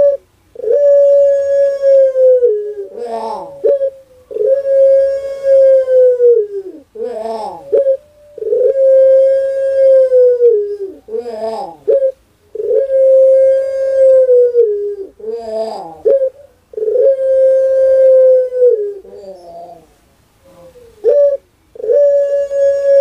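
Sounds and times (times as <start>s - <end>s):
dove cooing: 0.0s - 23.0s.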